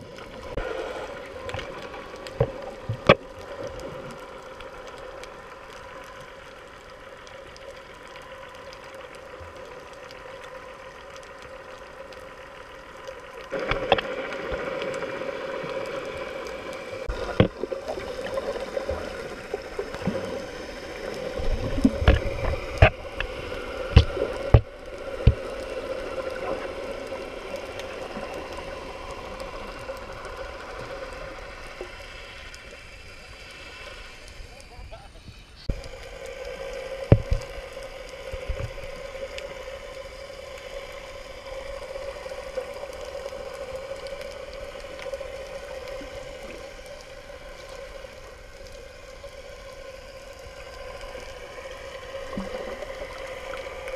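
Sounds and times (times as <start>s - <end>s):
muffled underwater water noise: 0.0s - 53.9s.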